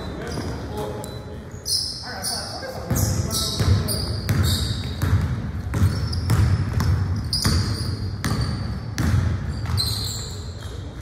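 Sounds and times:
basketball bouncing on hardwood: 3.6s - 9.9s.

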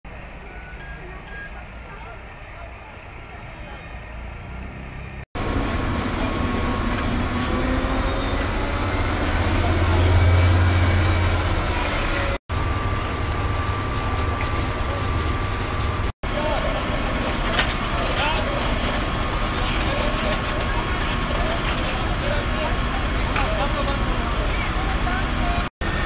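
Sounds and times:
fire truck engine humming: 0.1s - 26.0s.

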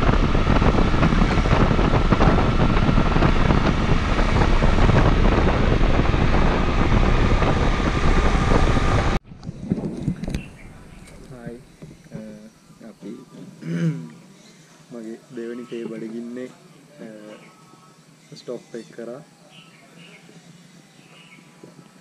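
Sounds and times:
wind rushing over microphone: 0.0s - 12.1s
motorcycle engine and road noise: 0.0s - 12.3s.

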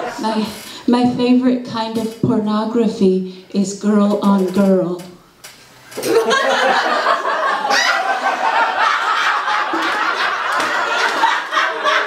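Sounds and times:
audience laughing: 6.0s - 12.0s.

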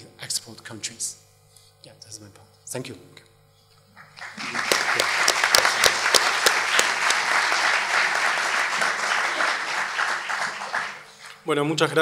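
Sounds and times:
audience applauding: 4.0s - 11.4s
sharp close claps: 4.0s - 11.4s.

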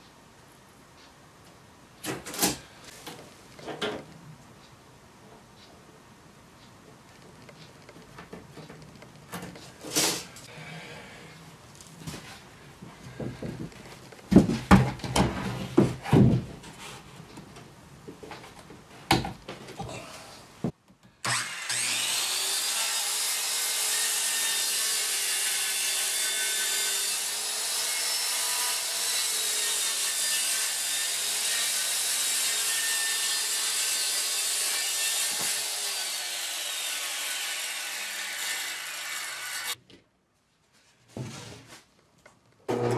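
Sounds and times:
circular saw cutting plywood: 21.2s - 39.8s, 42.7s - 42.9s.

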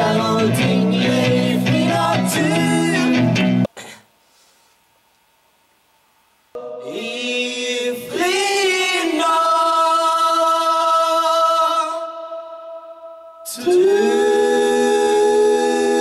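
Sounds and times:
voices singing held notes: 0.0s - 3.3s, 6.6s - 16.0s.

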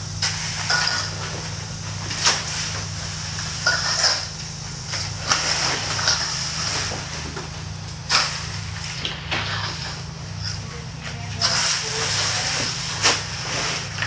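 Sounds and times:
steady low hum: 0.0s - 14.0s
rake scraping pebbles on concrete: 0.2s - 4.3s, 4.9s - 7.4s, 8.0s - 14.0s.

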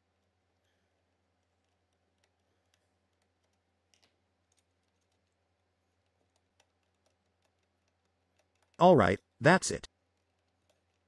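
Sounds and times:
plastic cable plugs clicking: 2.2s - 5.4s.

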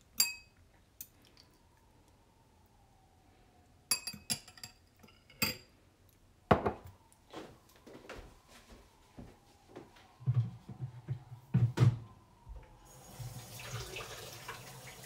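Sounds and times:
metal spoon clinking ceramic bowl: 0.2s - 0.6s, 3.9s - 5.7s.

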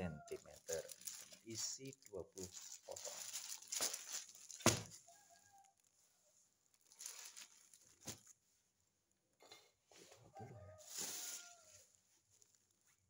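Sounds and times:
plastic packets rustling: 0.2s - 5.1s, 6.6s - 8.4s, 10.8s - 12.8s.

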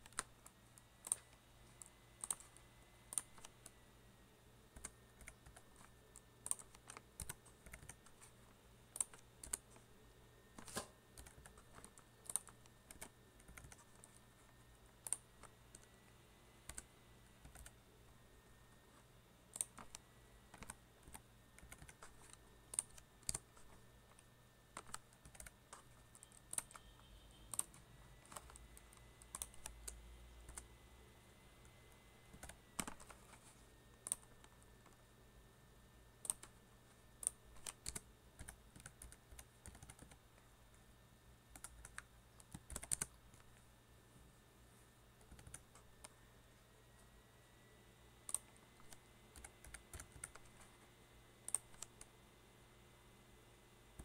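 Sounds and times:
keyboard typing: 0.0s - 3.8s, 4.7s - 30.8s, 31.6s - 35.0s, 36.2s - 40.5s, 41.5s - 43.6s, 45.2s - 46.2s, 48.2s - 52.2s.

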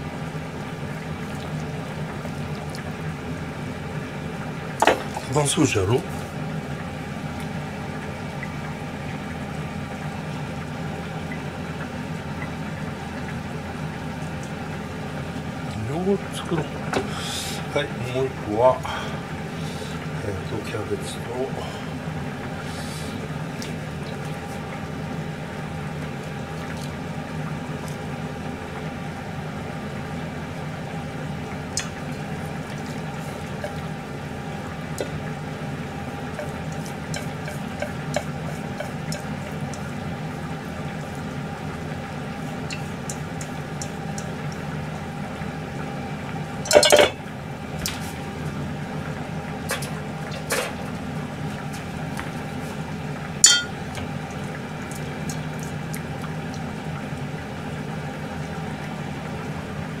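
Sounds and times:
steady background hum: 0.0s - 60.0s
metallic clatter of bowl: 46.7s - 47.2s, 53.4s - 53.8s.

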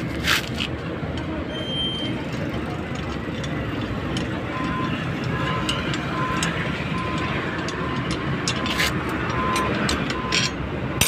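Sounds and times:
heavy vehicle engine running: 0.0s - 11.0s
light metallic clicks and taps: 2.3s - 10.6s.

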